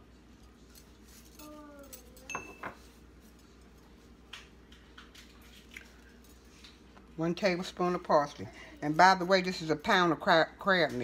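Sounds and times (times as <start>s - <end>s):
spoon clinking and tapping: 2.3s - 2.8s.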